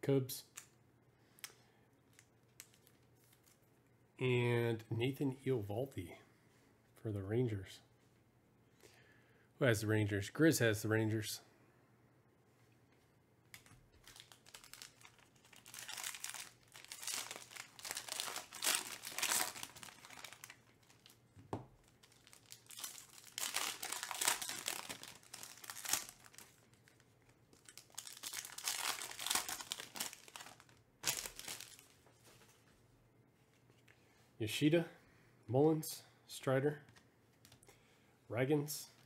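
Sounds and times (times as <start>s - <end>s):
foil pack crinkling: 13.6s - 32.1s.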